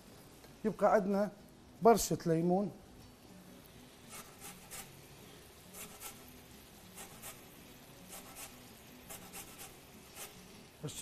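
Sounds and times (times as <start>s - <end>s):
lemon grating strokes: 4.1s - 5.0s, 5.7s - 10.5s.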